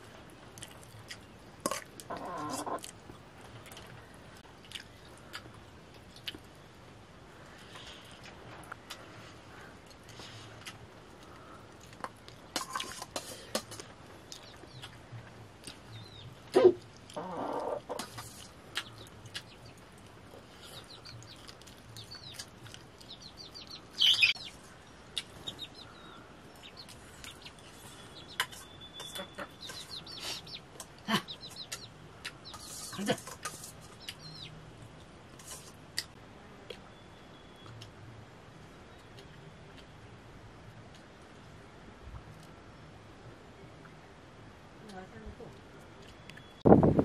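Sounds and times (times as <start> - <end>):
chickens clucking: 1.7 - 2.8, 16.1 - 19.8, 25.2 - 34.5.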